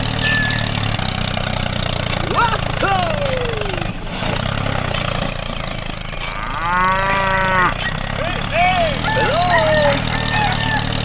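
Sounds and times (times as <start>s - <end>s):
small engine running: 0.0s - 11.0s
cow mooing: 6.2s - 7.9s.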